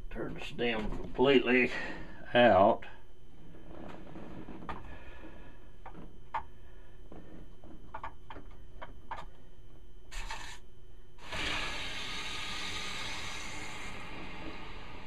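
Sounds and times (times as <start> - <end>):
short hiss: 10.1 - 10.6
valve stem squeaking: 10.1 - 10.6
water rushing through a valve: 11.2 - 15.0.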